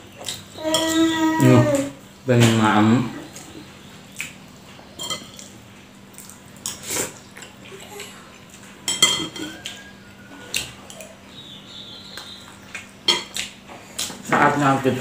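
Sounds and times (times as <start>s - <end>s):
spoon clinking on ceramic plate: 8.9s - 9.6s.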